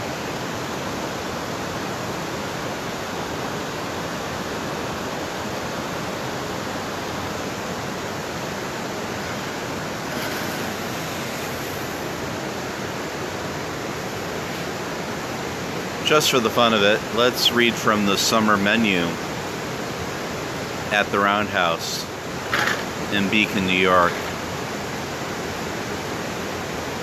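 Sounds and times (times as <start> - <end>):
water rushing over rocks: 0.0 - 27.0.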